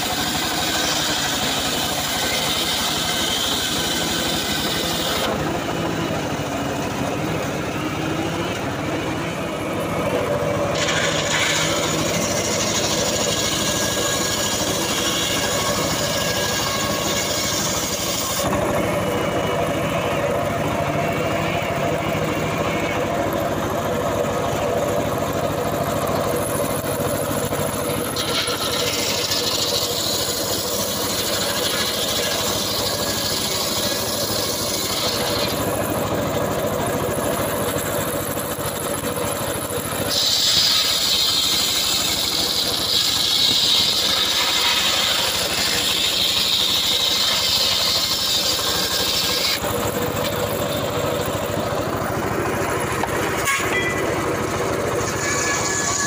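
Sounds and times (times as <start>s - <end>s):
saw blade ripping wood: 0.0s - 5.9s, 9.8s - 19.4s, 26.2s - 36.2s, 37.4s - 54.0s, 54.9s - 56.0s
sawbench engine running: 0.0s - 56.0s.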